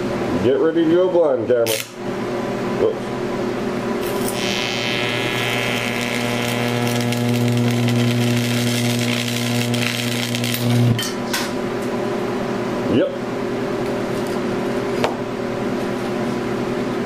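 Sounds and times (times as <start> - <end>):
electric arc buzzing and crackling: 1.6 - 2.0, 4.0 - 11.2.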